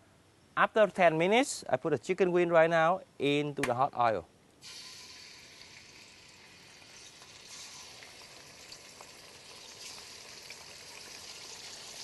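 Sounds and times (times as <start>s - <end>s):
chicken wings sizzling in hot oil: 4.6s - 12.0s
small crackles of frying oil: 4.6s - 12.0s.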